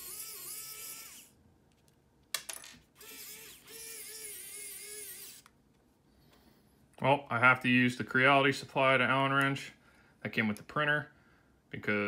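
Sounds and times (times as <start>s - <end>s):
electric screwdriver whining: 0.0s - 1.3s, 3.0s - 5.5s.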